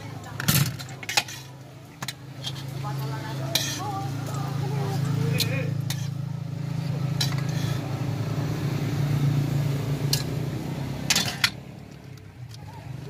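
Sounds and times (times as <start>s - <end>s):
metal spatula scraping griddle: 1.0s - 1.6s, 2.3s - 4.1s, 5.3s - 6.2s, 7.1s - 8.0s.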